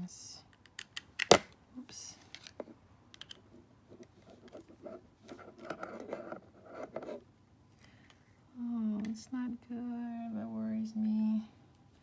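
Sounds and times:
plastic doll joint clicking: 0:03.1 - 0:03.4.

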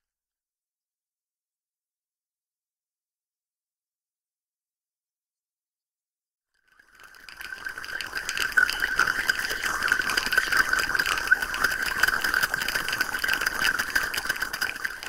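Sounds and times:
dense rapid crackling rattle: 0:07.0 - 0:15.0.

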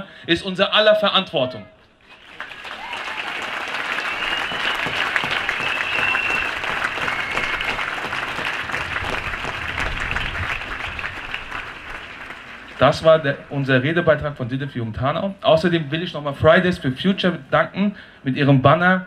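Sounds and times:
large crowd applauding: 0:02.1 - 0:13.7.

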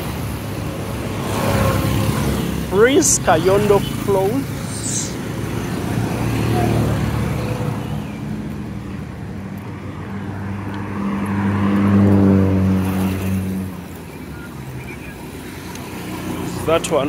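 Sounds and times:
motorcycle passing: 0:00.0 - 0:17.0
car driving past: 0:10.0 - 0:13.8.

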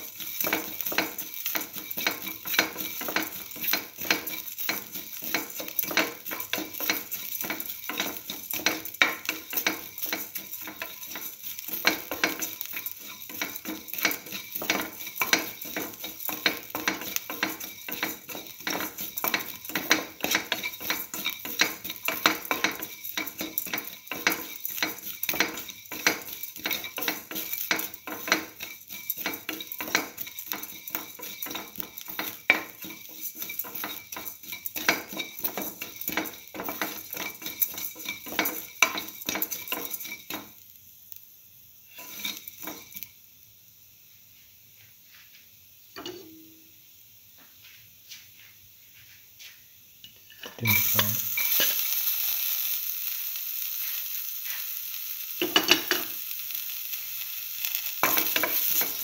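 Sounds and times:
spatula scraping metal pan: 0:00.0 - 0:40.6, 0:41.9 - 0:43.0, 0:50.3 - 0:51.8, 0:58.0 - 0:59.0
light sizzle: 0:00.0 - 0:59.0.

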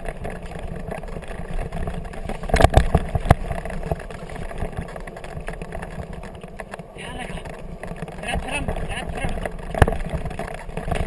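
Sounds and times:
scooter jolting over bumps: 0:00.0 - 0:11.0
wheels and frame rumbling and rattling: 0:00.0 - 0:11.0.

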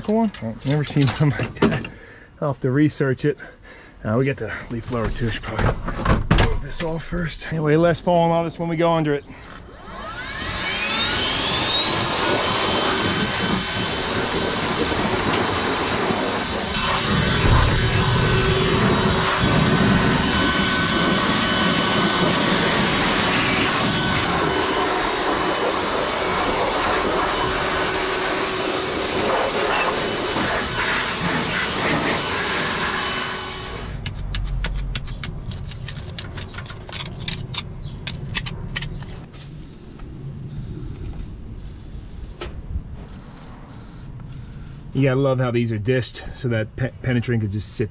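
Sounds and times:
leaf blower whining: 0:09.2 - 0:34.1.

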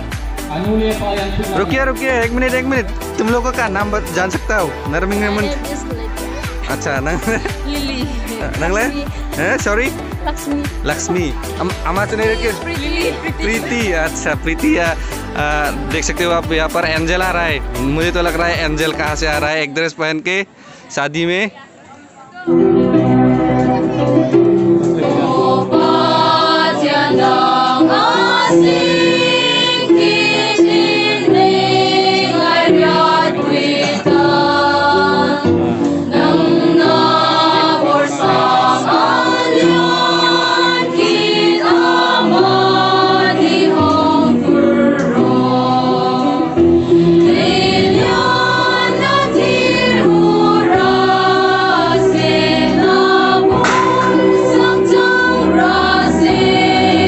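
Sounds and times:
choir singing a hymn: 0:00.0 - 0:02.0, 0:02.8 - 0:18.4, 0:24.4 - 0:57.0.

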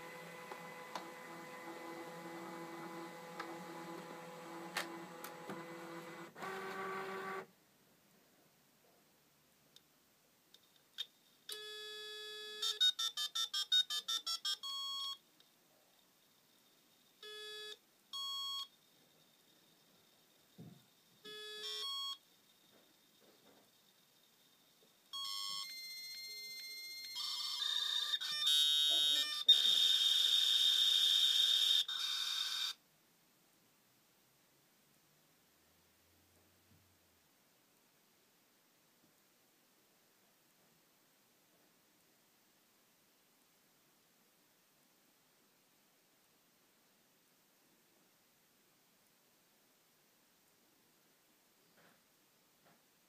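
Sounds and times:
steady high fax tone: 0:00.0 - 0:07.4, 0:17.2 - 0:23.3, 0:25.1 - 0:32.8
dial tone: 0:11.6 - 0:15.2, 0:21.3 - 0:22.2, 0:25.1 - 0:32.8
touch-tone dialing beeps: 0:12.7 - 0:15.2, 0:17.3 - 0:18.7, 0:21.3 - 0:22.2, 0:25.2 - 0:30.5
short calling beeps: 0:17.2 - 0:18.7, 0:21.3 - 0:22.2.

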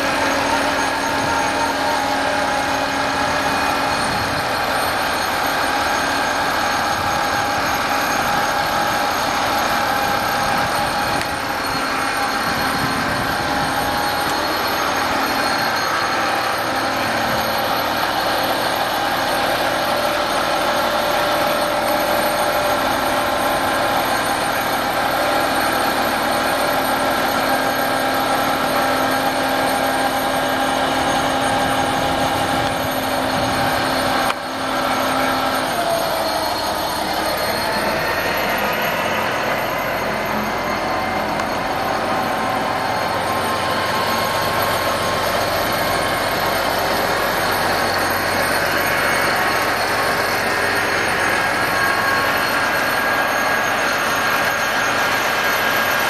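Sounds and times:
truck engine and hydraulic pump: 0:00.0 - 0:56.0.

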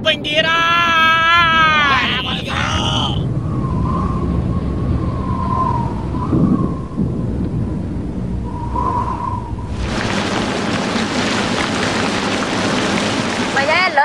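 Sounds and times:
heavy rain downpour: 0:00.0 - 0:03.2, 0:09.7 - 0:14.0
low rumble of thunder: 0:03.2 - 0:14.0.

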